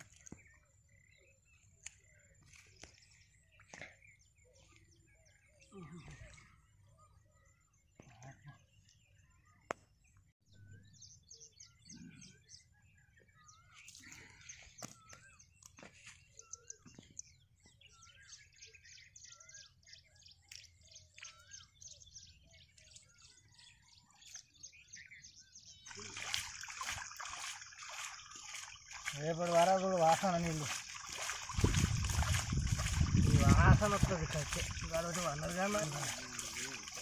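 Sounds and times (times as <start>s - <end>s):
small birds chirping: 0.0s - 37.0s
mud squelching and splashing: 25.9s - 37.0s.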